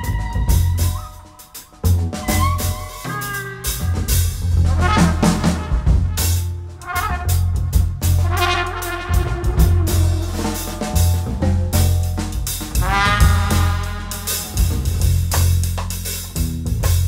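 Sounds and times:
trumpet melody: 0.0 - 15.4
drum kit and cymbals: 0.0 - 17.0
plucked double bass: 1.8 - 6.4, 9.2 - 17.0.

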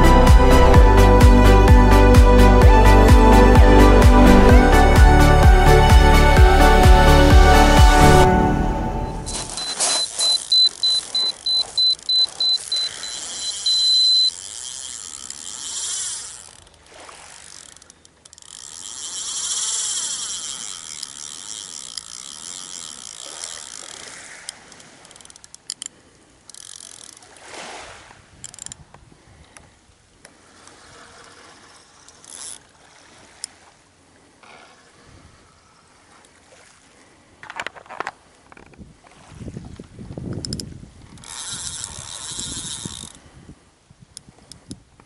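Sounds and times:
fishing reel winding: 9.3 - 27.4, 28.4 - 28.8, 30.6 - 33.6, 40.4 - 43.2
handling clicks and rustles: 9.3 - 27.4, 37.4 - 39.1.

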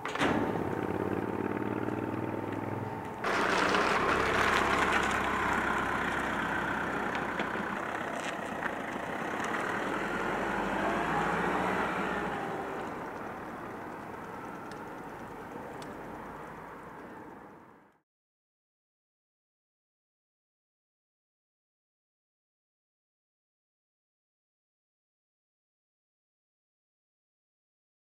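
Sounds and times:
engine humming: 0.0 - 18.0.

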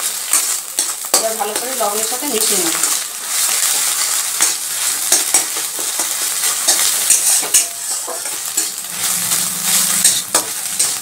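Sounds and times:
eggs sizzling in oil: 0.0 - 11.0
metal spatula scraping pan: 2.8 - 11.0.

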